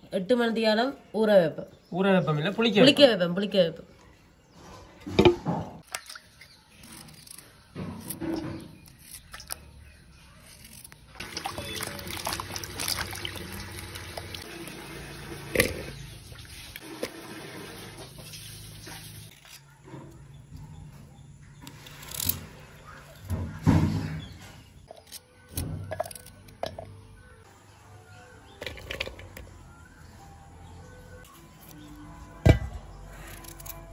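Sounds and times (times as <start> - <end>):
water splashing in a metal bowl: 5.8 - 6.6, 11.2 - 19.2.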